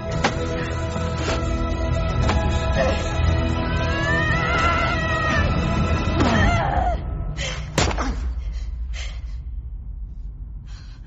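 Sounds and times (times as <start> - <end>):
low rumble: 8.3 - 11.0.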